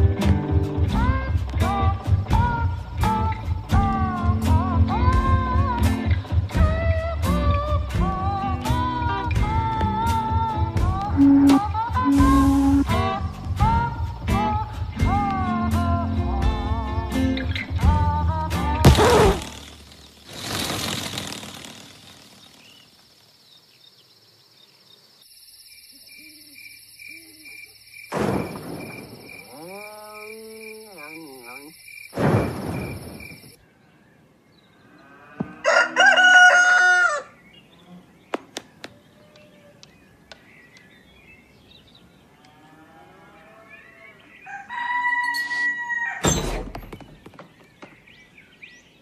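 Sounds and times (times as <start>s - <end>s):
high pulsing chirp: 11.2s - 13.0s
warbling glide: 19.2s - 22.8s
rooster crowing: 35.4s - 37.4s, 43.6s - 46.3s.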